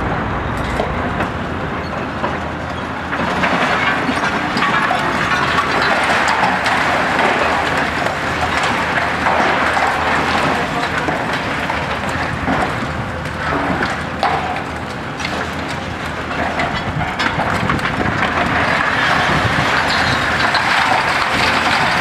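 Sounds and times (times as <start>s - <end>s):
excavator diesel engine and hydraulics: 0.0s - 22.0s
concrete crunching: 0.5s - 22.0s
falling rubble clattering: 0.5s - 22.0s.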